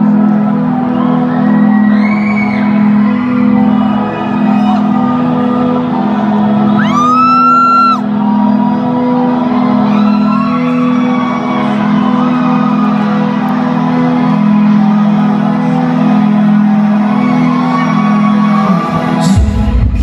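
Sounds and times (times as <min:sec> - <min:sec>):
audience shouts: 0:00.0 - 0:20.0
synth drone with pad chords: 0:00.0 - 0:20.0.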